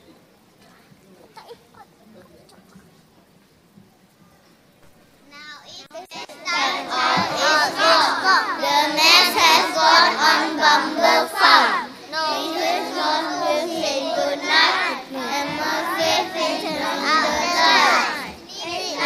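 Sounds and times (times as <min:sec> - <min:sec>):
young children singing: 0:05.9 - 0:19.0.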